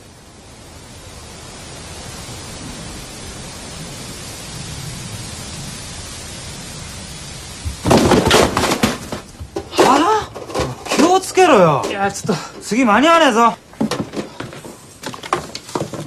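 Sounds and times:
steady rushing noise: 0.0 - 16.0
loud clatter of knocks: 7.7 - 12.7, 13.7 - 16.0.

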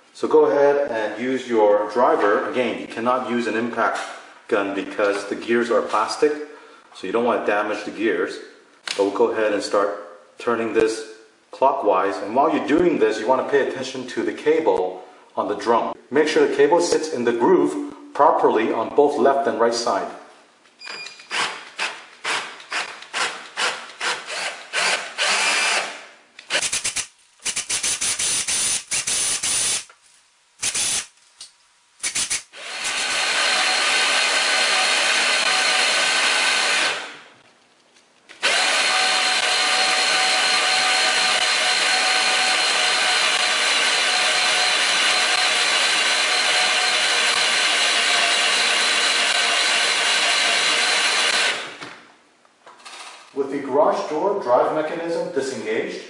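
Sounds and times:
cordless drill running: 21.3 - 26.7, 32.6 - 37.2, 38.4 - 51.8.

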